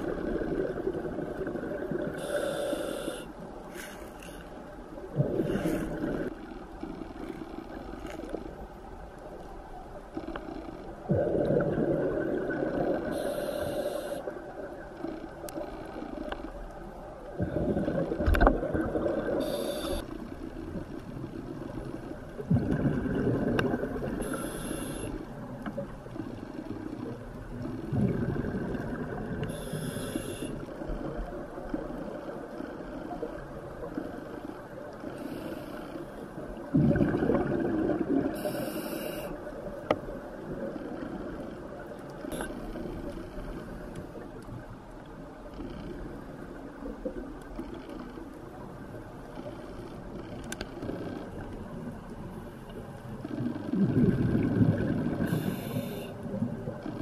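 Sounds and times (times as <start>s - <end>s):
regulator inhalation hiss: 2.2s - 4.1s, 13.1s - 14.3s, 19.4s - 20.0s, 24.2s - 25.2s, 29.5s - 30.6s, 38.4s - 39.4s, 55.2s - 56.2s.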